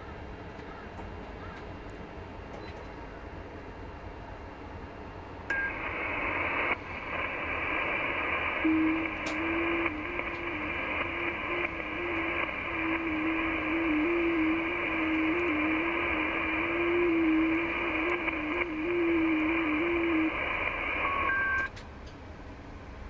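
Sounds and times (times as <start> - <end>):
radio band hiss: 5.5 - 21.7.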